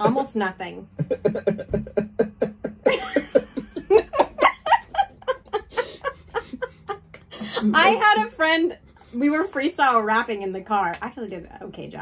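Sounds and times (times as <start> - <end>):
higher brighter laugh: 1.0 - 7.0
man and woman laughing: 1.0 - 8.0.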